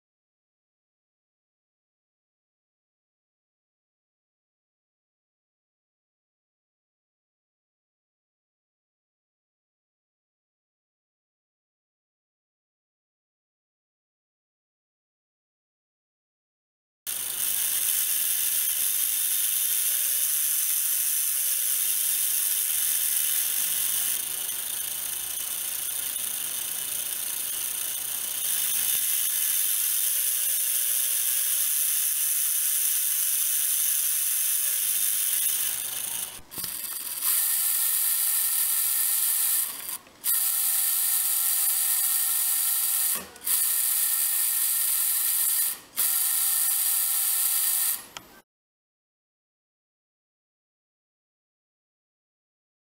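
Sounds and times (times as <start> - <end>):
small motor gearbox whirring: 17.1 - 48.4.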